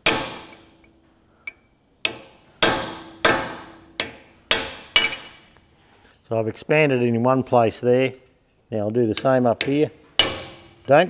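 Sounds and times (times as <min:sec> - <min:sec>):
hammer striking chisel on steel: 0:00.0 - 0:05.5, 0:09.2 - 0:11.0.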